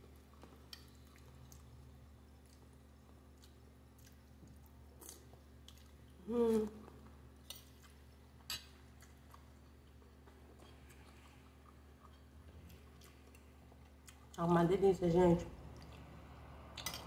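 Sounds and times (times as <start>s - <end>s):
person chewing: 0.1s - 14.4s
person humming mmm: 6.2s - 6.9s.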